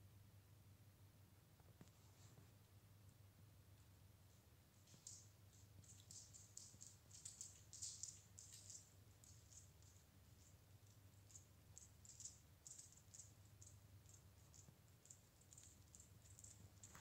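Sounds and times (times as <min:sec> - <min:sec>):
low steady hum: 0:00.0 - 0:17.0
faint light clicks and ticks: 0:04.7 - 0:17.0.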